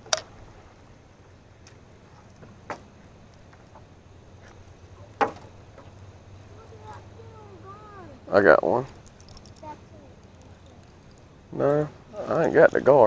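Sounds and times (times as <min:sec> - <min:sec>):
faint ticks: 0:00.0 - 0:08.1, 0:08.9 - 0:13.0
faint low hum: 0:00.0 - 0:13.0
sharp knocks: 0:05.2 - 0:05.9.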